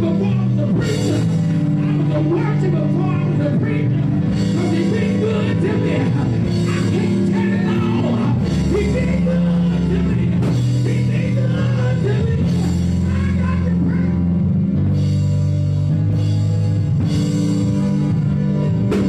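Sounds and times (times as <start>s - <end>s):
drums: 0.0s - 19.0s
sustained low chords: 0.0s - 19.0s
person singing into a microphone: 4.6s - 14.2s.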